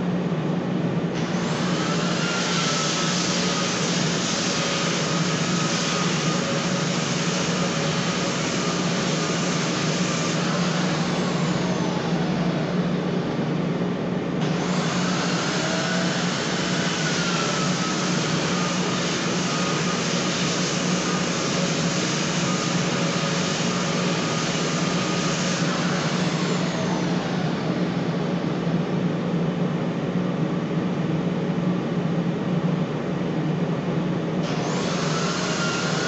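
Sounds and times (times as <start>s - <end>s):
electric sander humming: 14.4s - 27.7s.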